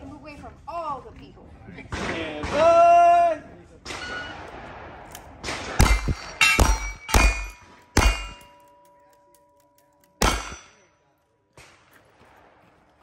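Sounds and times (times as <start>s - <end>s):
steel target ringing: 3.9s - 4.4s, 5.8s - 9.1s, 10.2s - 10.9s.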